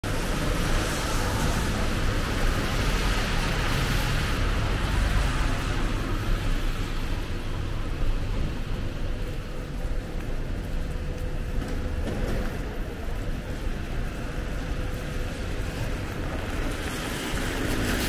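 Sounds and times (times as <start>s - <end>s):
low traffic rumble: 0.0s - 18.0s
rain: 0.0s - 18.0s
tyres hissing on wet road: 0.1s - 8.8s, 15.3s - 18.0s.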